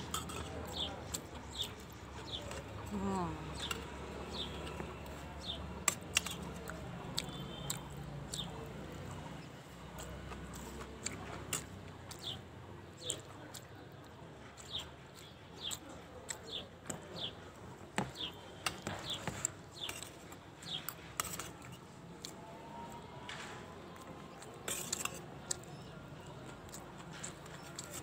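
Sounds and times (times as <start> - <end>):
spoon scraping steel plate: 0.0 - 0.5, 24.7 - 25.2.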